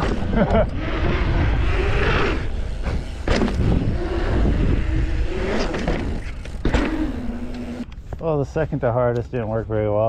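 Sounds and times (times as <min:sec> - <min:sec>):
wind on microphone: 0:00.0 - 0:08.2
bike tyres rolling: 0:00.0 - 0:09.2
sharp knocks from bike: 0:02.8 - 0:03.7, 0:05.6 - 0:07.0.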